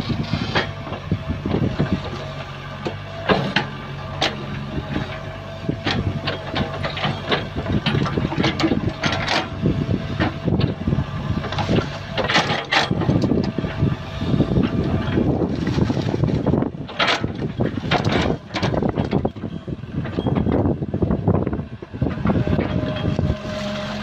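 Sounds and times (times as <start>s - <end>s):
excavator diesel engine: 0.0s - 24.0s
bucket scraping and clanking on rock: 15.5s - 19.3s.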